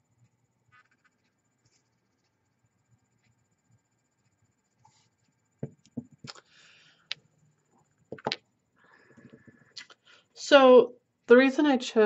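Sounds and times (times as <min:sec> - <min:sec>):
stones knocking on hard tabletop: 0:05.6 - 0:06.2, 0:08.1 - 0:08.4.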